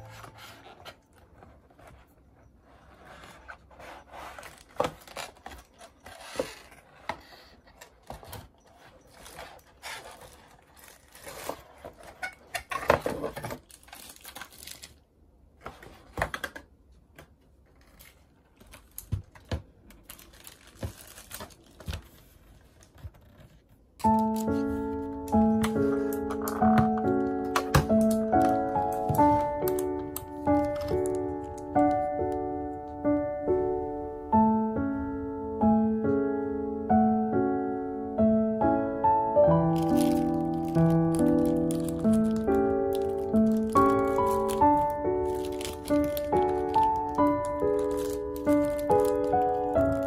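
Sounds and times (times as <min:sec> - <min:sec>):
cardboard rubbing and scraping: 0:00.0 - 0:12.5.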